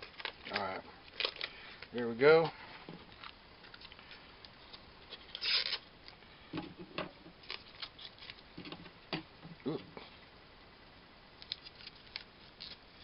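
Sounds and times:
plastic pouch crinkling and tearing: 0.0 - 2.0, 5.1 - 6.2, 7.4 - 8.4, 11.4 - 13.0.

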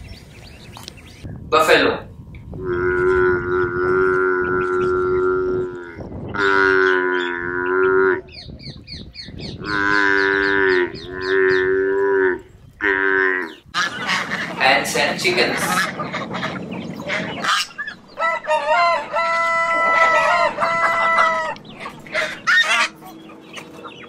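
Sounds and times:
water buffalo lowing: 2.5 - 8.4, 9.6 - 14.6, 15.7 - 23.5.

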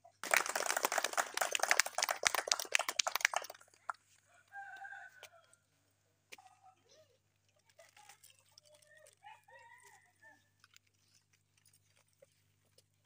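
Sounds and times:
hand clapping: 0.2 - 4.0
rooster crowing: 4.4 - 5.6.

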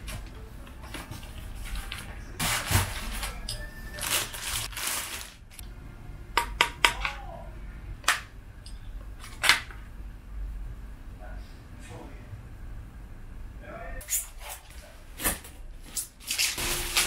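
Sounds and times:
paper rustling: 0.9 - 5.6.

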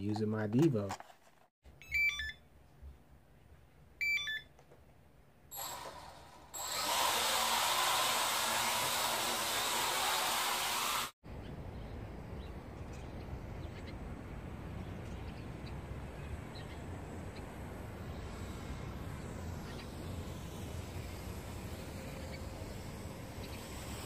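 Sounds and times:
outdoor background hum: 0.0 - 24.0
electronic beeps: 1.9 - 2.4
toy quadcopter motors whirring: 5.6 - 11.2, 17.2 - 24.0.

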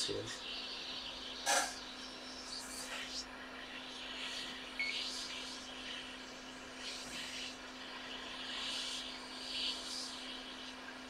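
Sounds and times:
steady low hum: 0.0 - 11.0
hot air blower hissing: 6.8 - 10.7.

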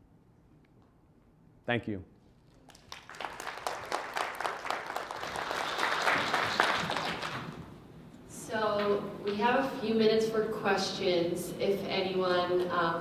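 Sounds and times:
audience applauding: 2.5 - 7.7.

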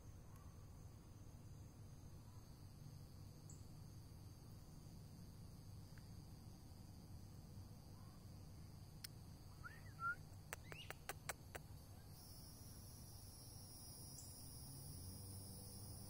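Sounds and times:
insect chorus: 0.0 - 16.0
rising chirp calls: 9.5 - 11.1
sharp clicks: 10.5 - 11.7.

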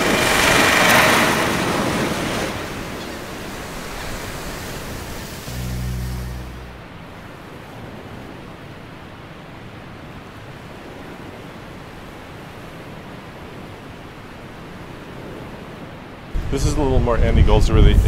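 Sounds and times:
ocean surf: 0.0 - 17.6
wind: 0.0 - 18.0
low musical tone: 4.8 - 7.2.

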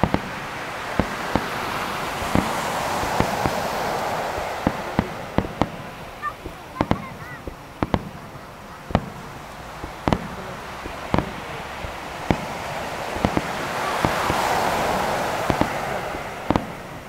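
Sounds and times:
firework hiss: 0.0 - 17.0
firework shells booming: 0.0 - 17.0.

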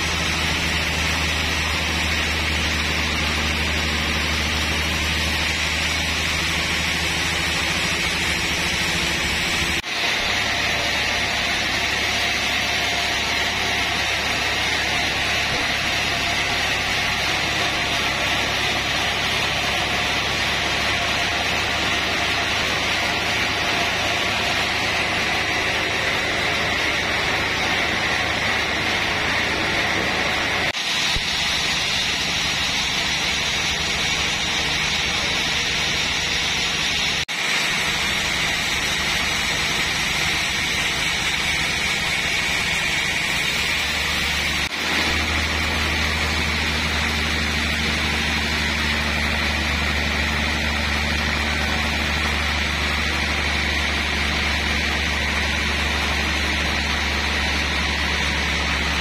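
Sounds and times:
sawmill machinery droning: 0.0 - 59.0.

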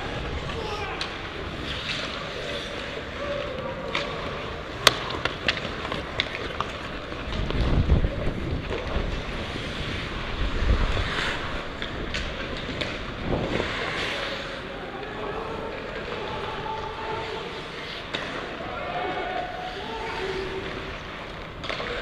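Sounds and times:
echoing arena background: 0.0 - 22.0
hockey sticks clacking on puck: 0.1 - 22.0
wind noise on microphone: 7.2 - 12.4, 13.0 - 13.9.

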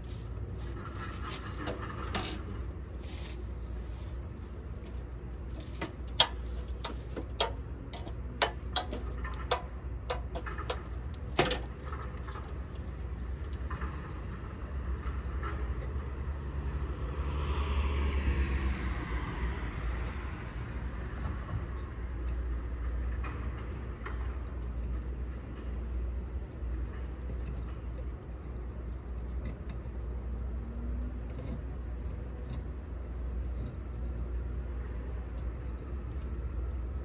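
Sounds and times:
sharp clicks and knocks: 4.8 - 16.0, 21.2 - 36.5
vehicle passing: 16.2 - 22.0.

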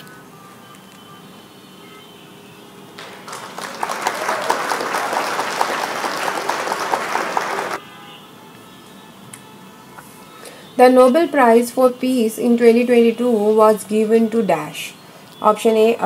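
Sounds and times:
crowd applause: 3.0 - 7.8.

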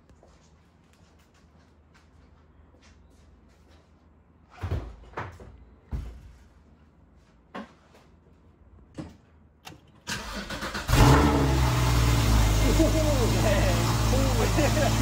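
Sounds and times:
loud continuous noise: 11.5 - 15.0.

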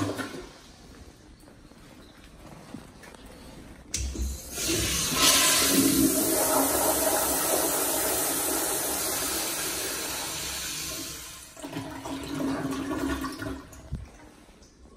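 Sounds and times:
toilet flushing: 0.0 - 0.7, 4.0 - 13.9
toilet refill with faint tone: 0.0 - 0.7, 3.9 - 14.8.

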